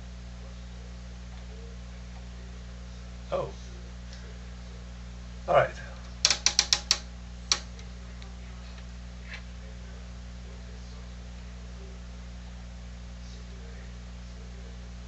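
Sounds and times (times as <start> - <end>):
low electrical hum: 0.0 - 15.0
sharp click: 6.2 - 7.9.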